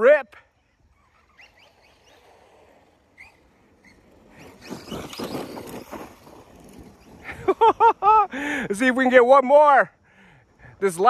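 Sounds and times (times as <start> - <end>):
rc truck motor whine: 0.5 - 7.3.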